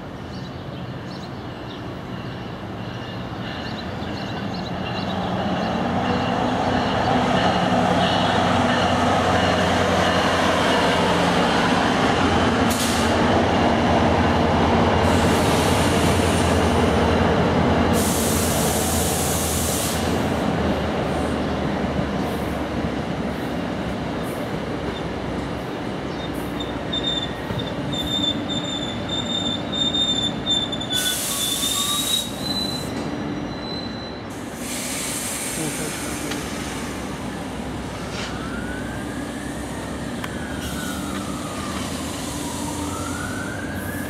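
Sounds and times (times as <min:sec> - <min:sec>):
diesel locomotive engine humming: 0:00.0 - 0:44.0
passenger coaches rolling: 0:00.0 - 0:44.0
high wheel squeal: 0:26.5 - 0:34.4.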